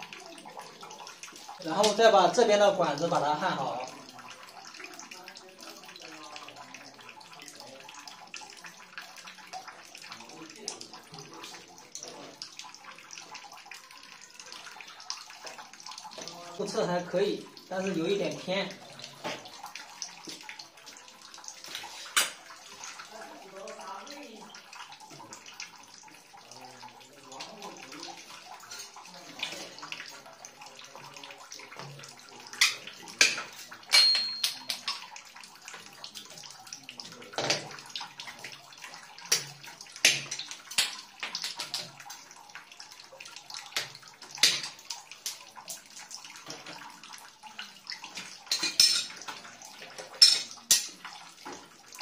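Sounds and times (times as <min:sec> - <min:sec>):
plastic pipes knocking and clicking: 0:37.4 - 0:37.8.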